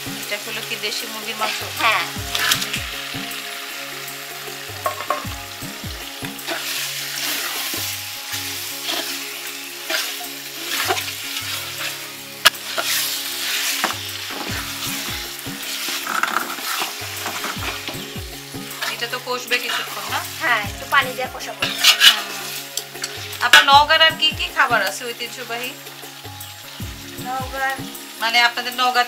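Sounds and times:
chicken sizzling in oil: 0:00.0 - 0:29.0
metal ladle scraping wok: 0:01.0 - 0:05.3, 0:06.3 - 0:23.7
metal knock on pan: 0:04.8 - 0:05.4.

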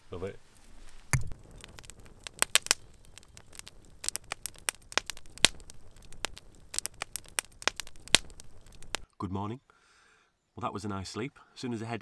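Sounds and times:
logs crackling in fire: 0:00.0 - 0:09.1
sharp pops of fire: 0:00.5 - 0:09.0.

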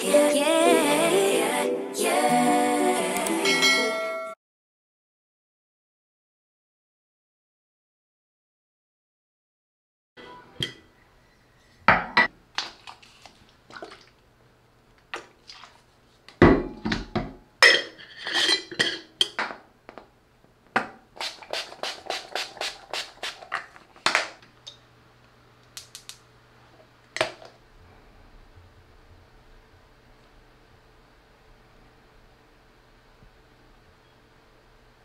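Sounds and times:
dishes and cutlery clattering: 0:16.6 - 0:19.4.

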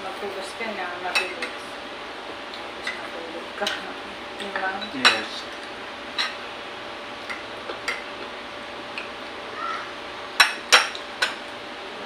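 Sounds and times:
tableware clinking: 0:04.4 - 0:06.4.

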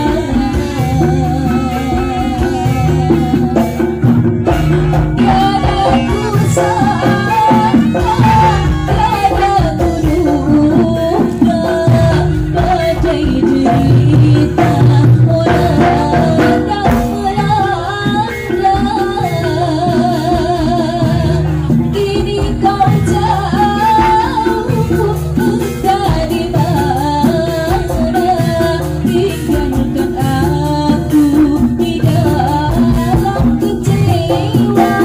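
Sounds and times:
drums and percussion: 0:00.0 - 0:35.0
person singing wavering melody: 0:05.0 - 0:35.0.

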